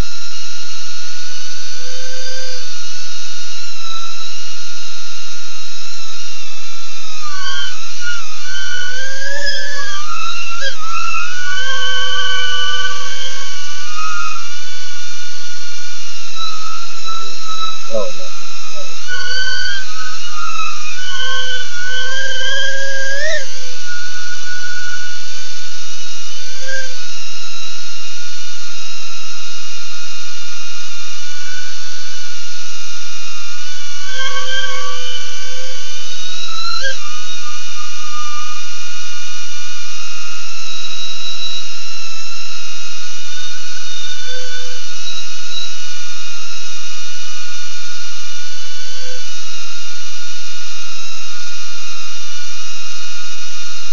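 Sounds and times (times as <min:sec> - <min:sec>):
drone motors whining: 0:01.5 - 0:27.8, 0:31.0 - 0:39.5.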